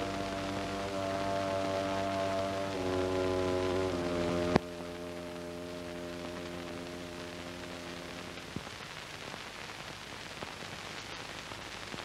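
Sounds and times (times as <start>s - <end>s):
held musical chord: 0.0s - 8.5s
soundtrack hiss and crackle: 0.0s - 12.0s.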